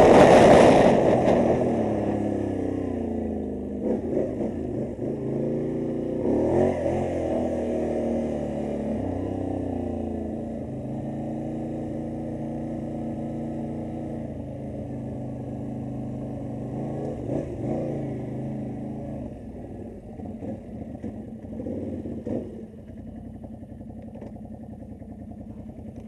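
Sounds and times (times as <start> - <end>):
quad bike engine idling: 7.4 - 26.0.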